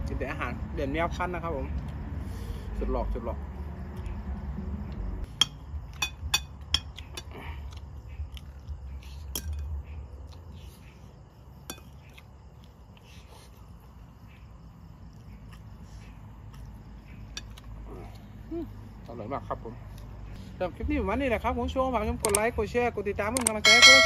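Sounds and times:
metal spoon clinking on ceramic plate: 23.6s - 24.0s.

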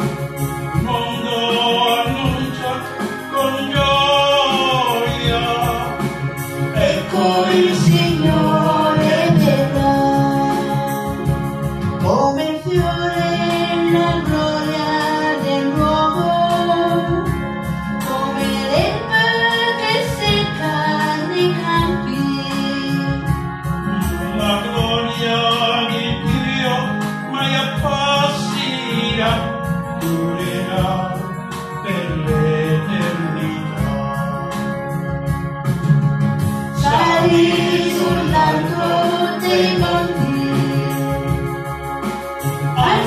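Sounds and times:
electronic keyboard chords: 0.0s - 43.0s
woman and man singing a hymn: 0.8s - 11.4s, 12.0s - 17.4s, 36.8s - 41.5s, 42.8s - 43.0s.

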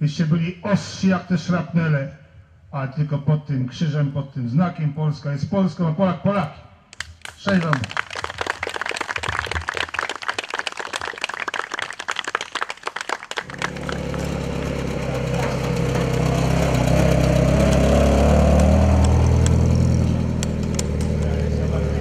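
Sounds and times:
dense crackling clatter: 13.4s - 21.4s
off-road vehicle engine driving off: 13.4s - 22.0s.

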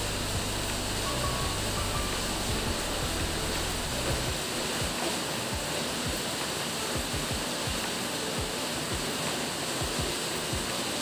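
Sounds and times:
background hiss: 0.0s - 11.0s.

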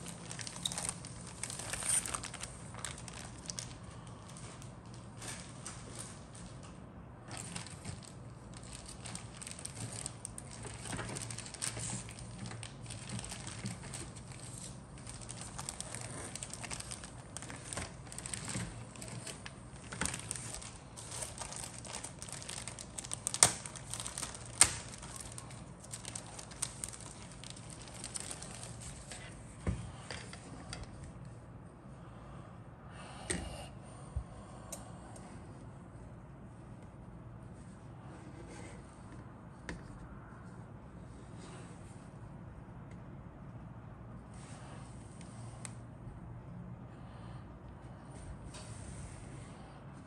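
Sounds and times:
plastic bag crinkling: 0.0s - 6.2s, 7.3s - 29.4s.

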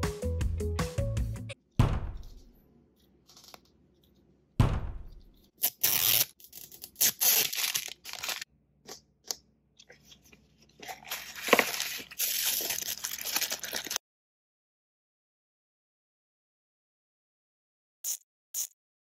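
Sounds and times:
thump: 1.8s - 2.4s, 4.6s - 5.2s
plastic wrap tearing: 5.6s - 8.5s, 10.8s - 14.0s
plastic crinkling and crackling: 6.4s - 8.5s, 9.8s - 14.0s.

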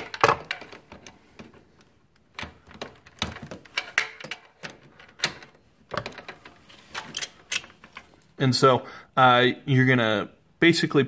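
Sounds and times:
torque wrench metal clicks: 7.0s - 7.7s.

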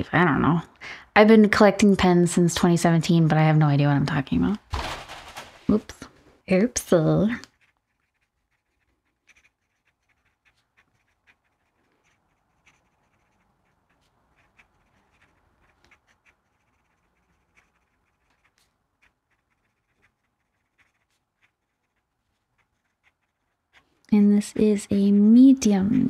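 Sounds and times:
pen nib scratching paper: 7.0s - 24.0s.

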